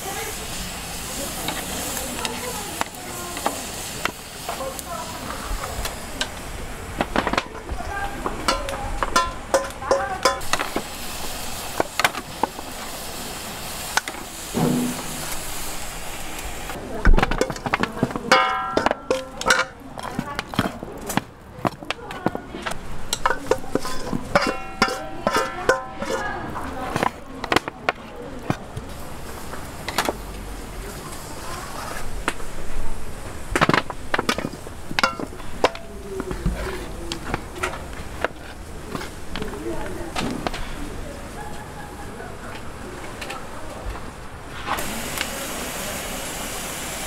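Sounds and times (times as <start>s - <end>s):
steady hiss: 0.0s - 16.8s, 44.2s - 47.0s
clicks and knocks of kitchen work: 7.0s - 10.9s, 17.0s - 28.6s, 33.5s - 39.5s
sharp knocks and clatter: 14.6s - 15.3s
heavy thud: 14.6s - 15.5s.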